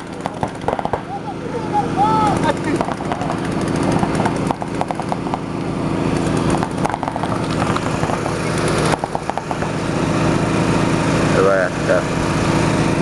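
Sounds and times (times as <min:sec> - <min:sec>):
paintball markers firing: 0:00.0 - 0:01.1, 0:02.5 - 0:05.5, 0:06.1 - 0:09.8
steady motor-like hum: 0:00.0 - 0:13.0.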